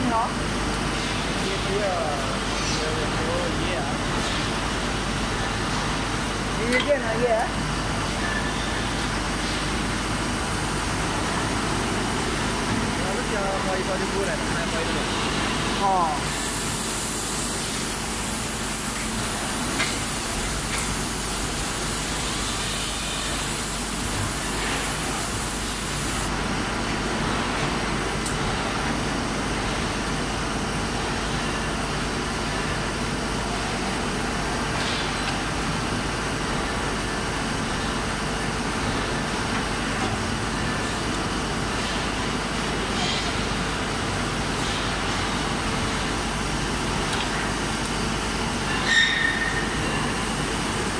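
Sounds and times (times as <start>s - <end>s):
high hiss: 16.3s - 26.3s
spring winding machine running: 16.3s - 26.3s.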